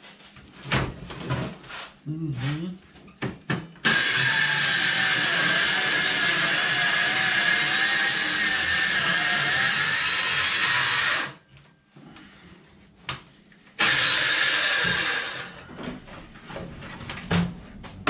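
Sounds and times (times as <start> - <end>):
circular saw cutting wood: 3.8 - 11.4, 13.8 - 15.6.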